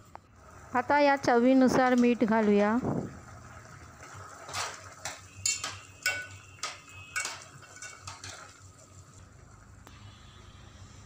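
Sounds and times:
metal spoon clinking on pot: 4.5 - 8.6.

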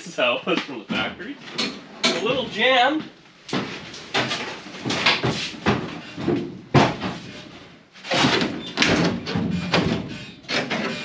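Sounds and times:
metal bangs and knocks: 3.5 - 11.0.

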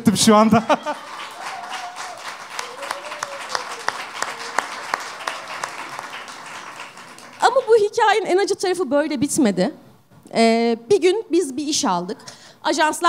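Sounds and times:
audience applauding: 0.6 - 7.8.

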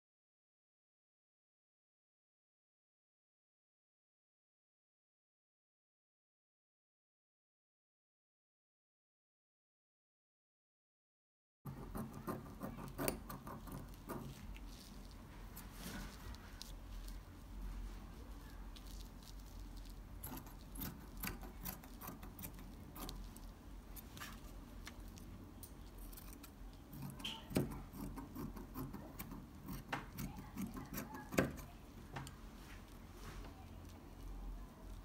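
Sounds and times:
fabric rustling and crinkling: 14.2 - 20.2, 23.1 - 26.0.

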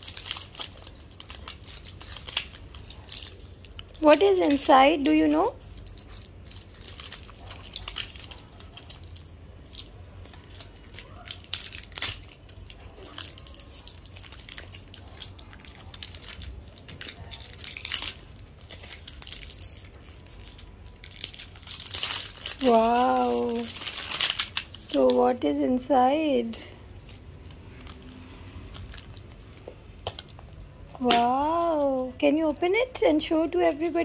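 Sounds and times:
plastic wrapping crinkling and tearing: 0.0 - 32.1.

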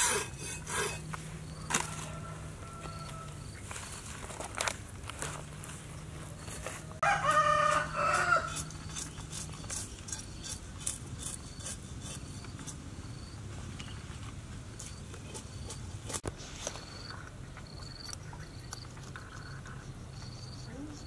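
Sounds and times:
cleaver scraping fish scales: 0.0 - 2.4, 6.4 - 12.9
rooster crowing: 1.6 - 3.6, 7.0 - 8.7.

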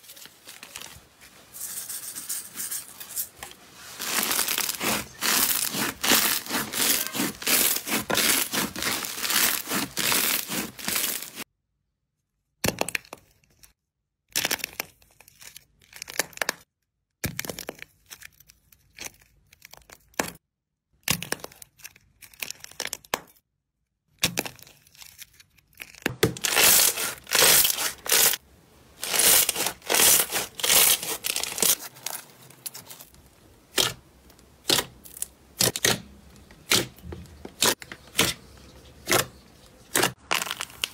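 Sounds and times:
slime crackling and crinkling: 0.0 - 1.6, 3.5 - 11.5, 24.2 - 40.9
slime squishing: 3.8 - 11.4, 29.0 - 40.9.

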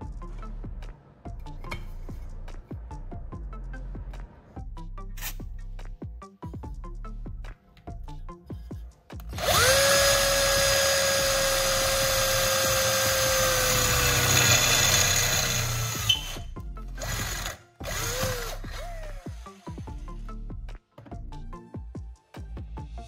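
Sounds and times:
electric drill motor spinning: 9.4 - 20.0.

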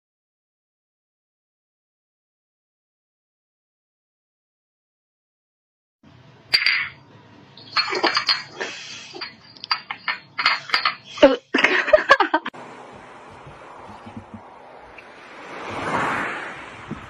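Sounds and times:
dish clicking on tile floor: 7.6 - 11.1
person laughing: 11.1 - 12.5.

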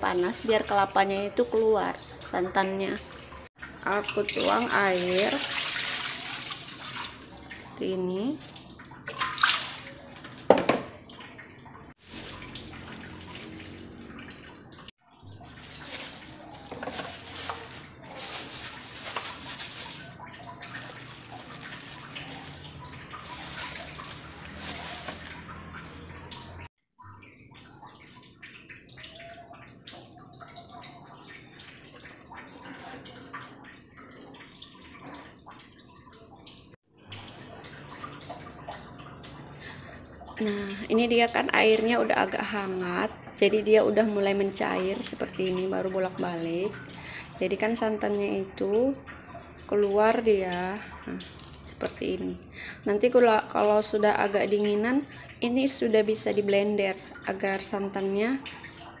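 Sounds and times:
water splashing in a wok: 0.0 - 59.0.

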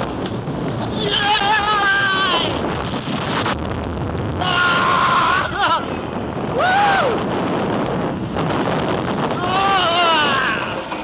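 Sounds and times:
roller coaster train rumble: 0.0 - 11.0
wind on microphone: 0.0 - 11.0
riders screaming: 0.8 - 2.6, 4.4 - 7.3, 9.3 - 11.0.

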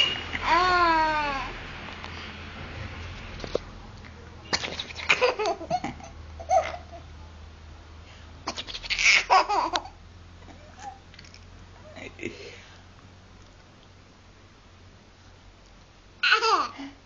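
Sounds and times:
person laughing: 11.8 - 12.6.

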